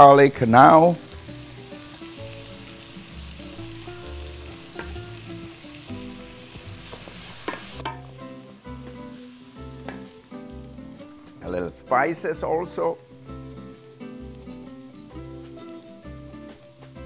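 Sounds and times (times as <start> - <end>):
onions sizzling in a pan: 0.0 - 11.5, 12.8 - 17.0.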